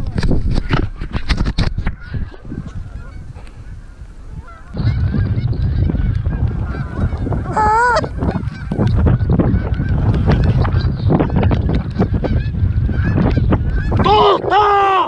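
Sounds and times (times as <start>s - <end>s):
geese honking: 2.0s - 14.0s
low rumble: 4.4s - 14.1s.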